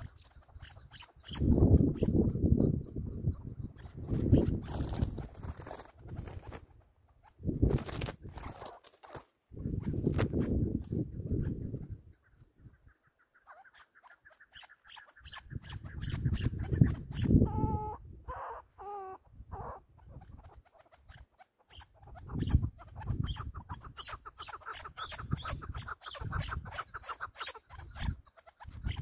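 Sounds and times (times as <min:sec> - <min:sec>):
wind rumble on microphone: 0:00.0 - 0:06.6, 0:07.4 - 0:08.5, 0:09.5 - 0:12.9, 0:15.4 - 0:18.4, 0:19.2 - 0:20.6, 0:22.0 - 0:24.0, 0:24.9 - 0:26.9, 0:27.7 - 0:29.0.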